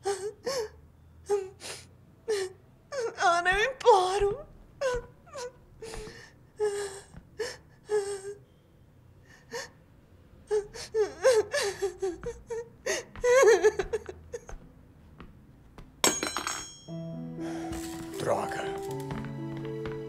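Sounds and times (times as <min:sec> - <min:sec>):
woman sobbing and crying: 0:00.0 - 0:08.4, 0:10.4 - 0:14.6.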